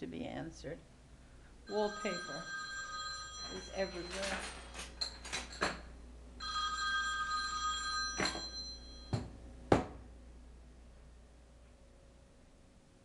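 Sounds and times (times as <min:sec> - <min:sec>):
telephone ringing: 0:01.7 - 0:09.2.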